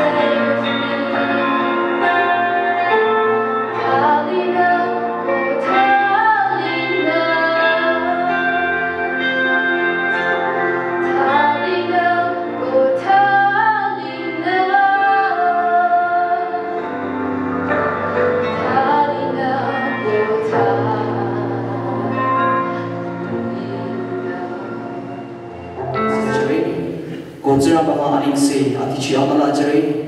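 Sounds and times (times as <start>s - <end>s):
woman singing into microphone: 0.0s - 9.4s, 11.0s - 17.2s, 18.4s - 25.4s
held accompaniment chords: 0.0s - 30.0s.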